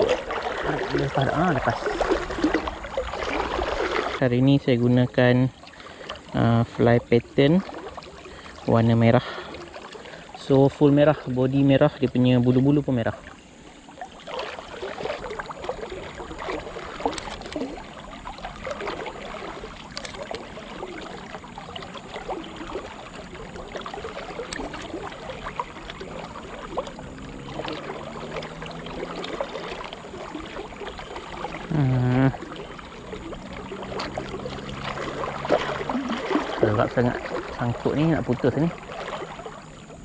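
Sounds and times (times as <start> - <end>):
river water rippling: 0.0 - 40.0
low voice sound: 31.7 - 32.4.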